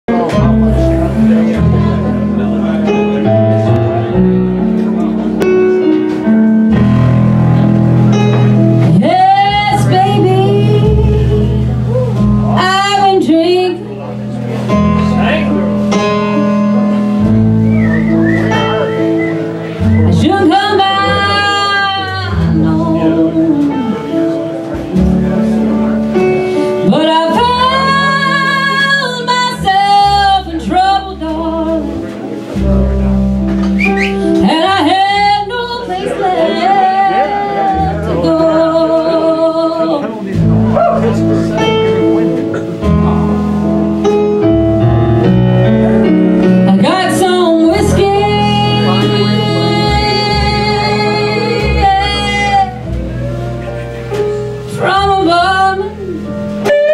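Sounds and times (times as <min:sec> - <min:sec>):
electric keyboard: 0:00.1 - 0:56.9
live band playing: 0:00.1 - 0:56.9
woman singing: 0:08.8 - 0:13.8, 0:20.0 - 0:24.1, 0:26.8 - 0:32.0, 0:34.4 - 0:40.2, 0:46.7 - 0:52.8, 0:54.7 - 0:56.9.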